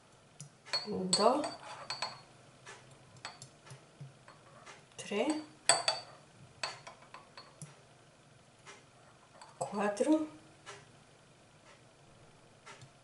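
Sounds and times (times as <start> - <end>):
metal spoon clinking against glass jar: 0.7 - 2.3, 5.3 - 7.6.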